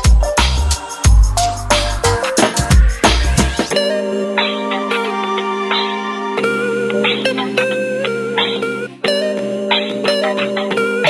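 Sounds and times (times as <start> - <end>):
background music of held notes: 0.0 - 11.0.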